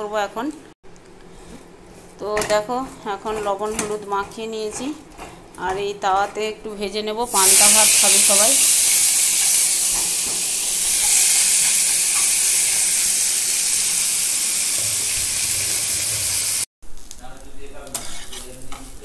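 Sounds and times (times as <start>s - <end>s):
fish sizzling in hot oil: 7.3s - 19.0s.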